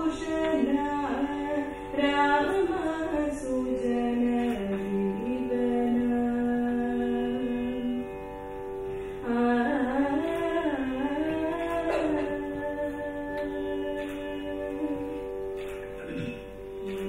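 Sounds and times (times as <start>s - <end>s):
indian classical melody: 0.0s - 17.0s.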